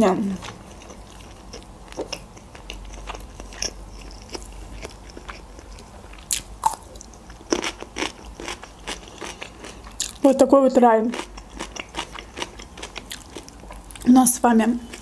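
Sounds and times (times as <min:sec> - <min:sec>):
person chewing: 0:00.3 - 0:10.2, 0:11.1 - 0:14.1.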